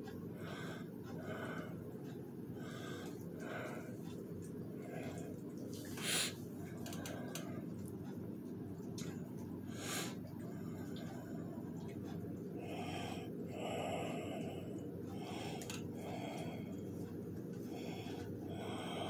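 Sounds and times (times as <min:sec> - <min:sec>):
cat breathing hard: 0:12.6 - 0:17.0.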